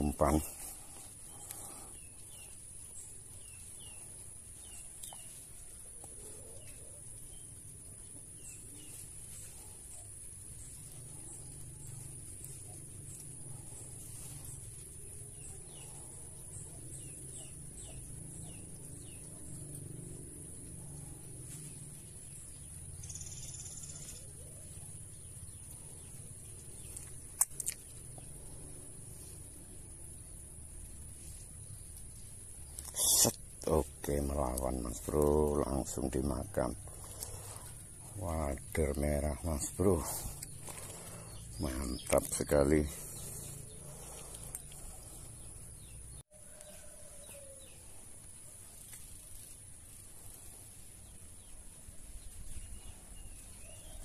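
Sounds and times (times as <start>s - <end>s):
low outdoor background: 0.0s - 54.0s
small birds chirping: 0.0s - 54.0s
high insect drone: 6.2s - 54.0s
sharp clicks: 27.0s - 27.9s.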